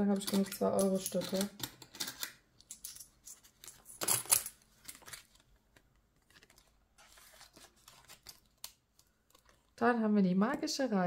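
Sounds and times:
coins clinking: 0.1 - 5.0.

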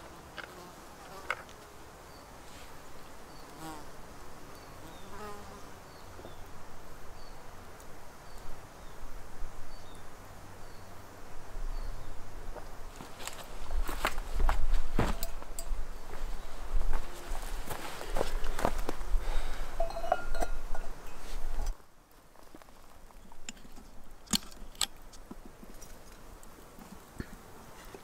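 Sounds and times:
flying insect buzzing: 2.7 - 6.4
footsteps on wooden ladder: 13.0 - 15.5.

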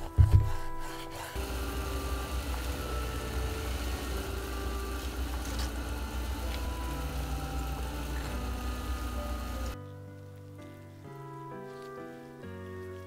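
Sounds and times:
broth boiling: 1.4 - 9.8.

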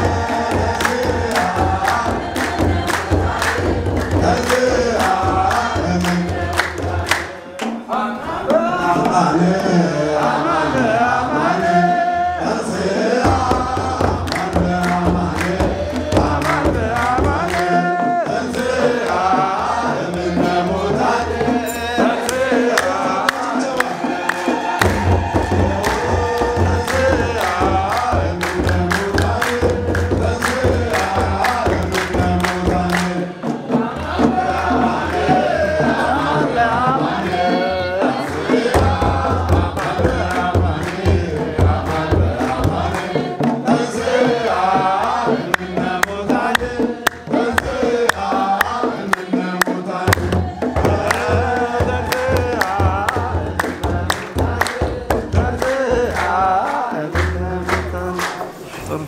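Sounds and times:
hand drum beating: 0.0 - 7.8, 12.7 - 58.6
congregation chanting a hymn: 0.0 - 59.0
hands clapping: 0.3 - 7.8, 13.5 - 17.8, 21.8 - 33.2, 44.9 - 50.3, 51.0 - 59.0.

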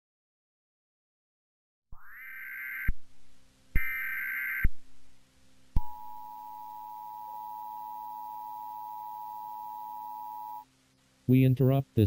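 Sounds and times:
warbling digital data tones: 2.0 - 3.0, 3.8 - 4.7, 5.8 - 10.6
low steady hum: 2.9 - 12.0
steady two-tone beep: 3.8 - 4.7, 5.8 - 10.6.

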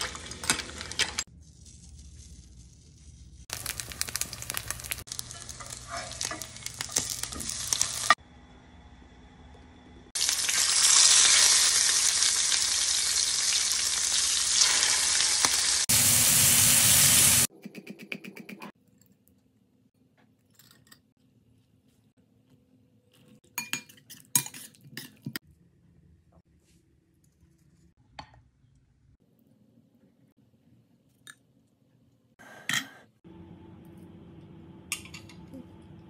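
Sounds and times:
hot oil sizzling in a skillet: 3.4 - 8.2, 10.2 - 17.5.

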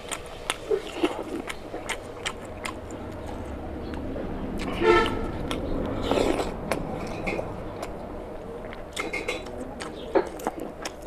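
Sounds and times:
wet chewing and mouth smacks: 0.0 - 4.0, 4.6 - 8.0, 8.6 - 11.0.

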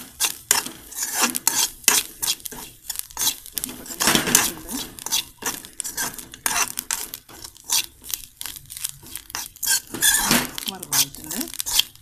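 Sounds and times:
spoon scraping a metal pan: 0.0 - 12.0.

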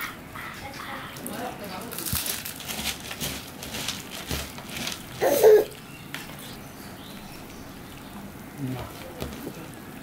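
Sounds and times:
dry puffed rice crunching: 1.8 - 5.8.

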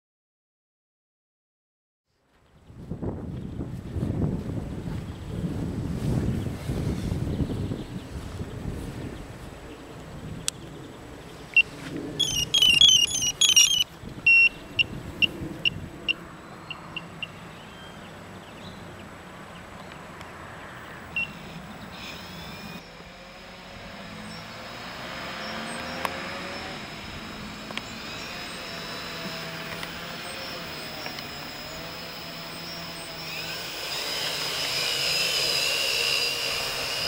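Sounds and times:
electronic start-up beeps: 11.6 - 14.6
electric motors whirring: 11.6 - 14.9, 21.0 - 37.0.

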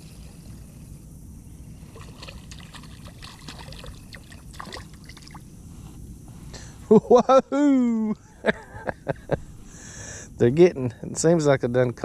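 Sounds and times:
fish splashing at water surface: 1.9 - 5.4.

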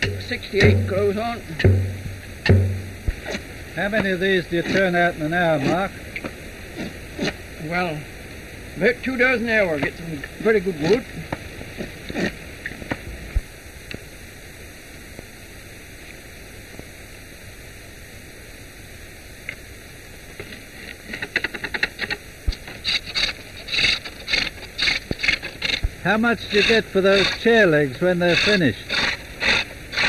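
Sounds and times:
hand tool scraping wood: 0.0 - 1.9, 4.6 - 4.9, 21.1 - 30.0
knocks on wood: 0.0 - 3.2
film soundtrack hiss: 0.0 - 30.0.

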